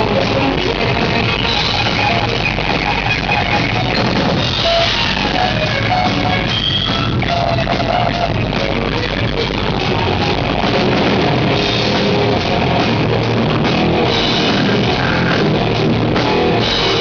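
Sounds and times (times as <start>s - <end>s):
drum kit: 0.0s - 17.0s
electric guitar: 0.0s - 17.0s.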